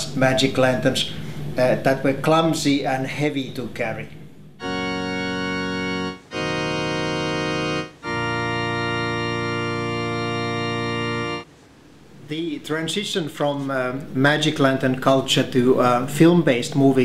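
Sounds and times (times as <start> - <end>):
organ chords: 4.6 - 11.5.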